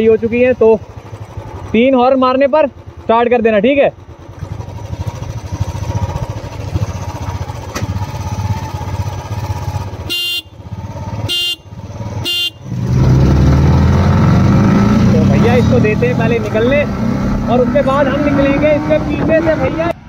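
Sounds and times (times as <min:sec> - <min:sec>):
motorcycle engines idling: 0:00.0 - 0:20.0
motorcycle engines revving: 0:00.0 - 0:20.0
short horn beeps: 0:10.0 - 0:10.6, 0:11.2 - 0:12.7.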